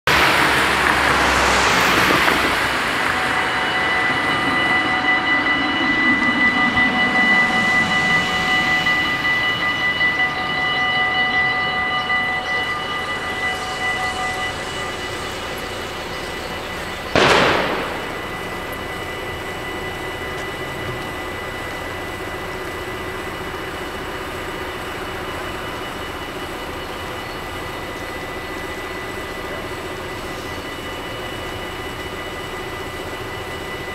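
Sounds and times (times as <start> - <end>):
car driving past: 0.1 - 9.7
level crossing bells ringing: 0.5 - 33.9
sharp thump: 17.2 - 18.4.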